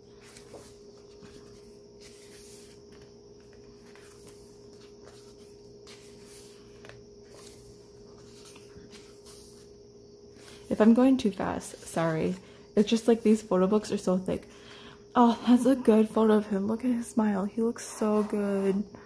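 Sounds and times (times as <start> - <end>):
book pages turning: 0.0 - 13.5
faint steady hum: 0.0 - 19.0.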